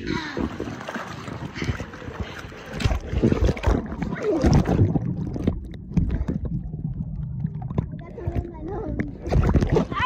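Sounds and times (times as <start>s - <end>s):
water rushing: 0.0s - 8.5s
muffled underwater sound: 3.3s - 10.0s.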